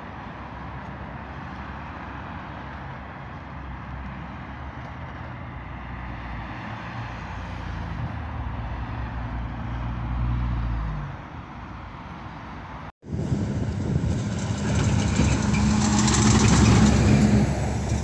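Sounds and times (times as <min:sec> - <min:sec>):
cars passing: 0:00.0 - 0:18.0
vehicle rumble passing close: 0:13.0 - 0:18.0.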